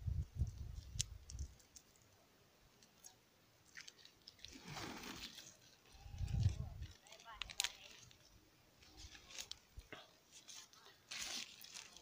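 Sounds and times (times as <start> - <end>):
plastic strip crinkling: 2.9 - 8.3, 10.3 - 12.0.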